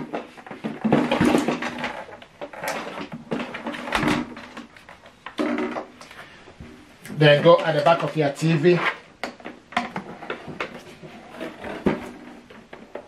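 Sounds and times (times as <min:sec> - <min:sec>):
rubbing and scraping on tabletop: 0:06.1 - 0:09.1, 0:10.0 - 0:12.7.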